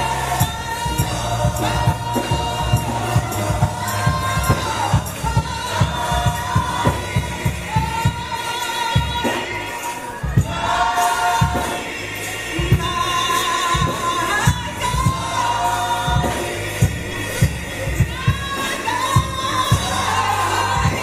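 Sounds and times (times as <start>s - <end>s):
band with steady beat: 0.0s - 21.0s
gospel choir singing: 0.0s - 21.0s.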